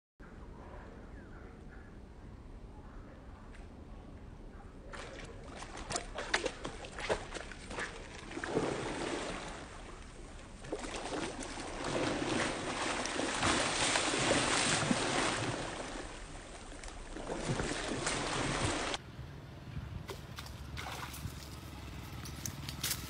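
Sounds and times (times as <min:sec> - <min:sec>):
fish splashing water: 0:04.9 - 0:19.0, 0:20.1 - 0:22.6.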